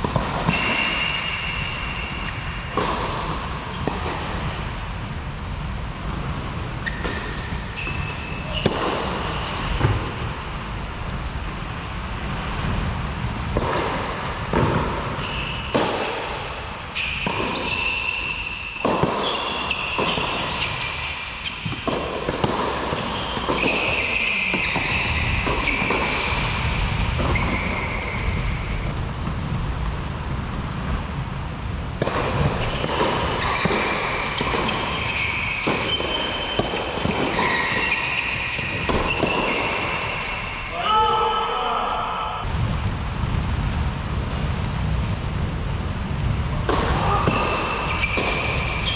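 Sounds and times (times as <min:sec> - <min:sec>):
tennis racket strikes: 0:06.9 - 0:10.2, 0:13.5 - 0:27.7
tennis ball bounces: 0:18.8 - 0:27.6, 0:32.0 - 0:40.4
low rumble: 0:42.4 - 0:46.7.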